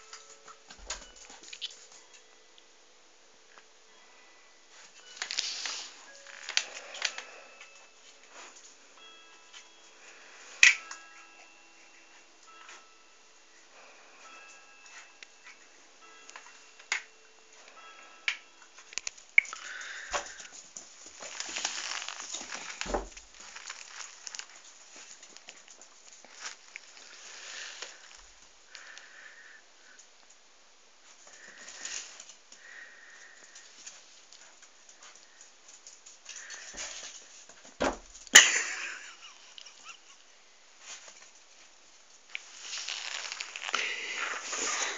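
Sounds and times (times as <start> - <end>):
scratchy rustle: 21.2 - 25.1, 42.4 - 44.9.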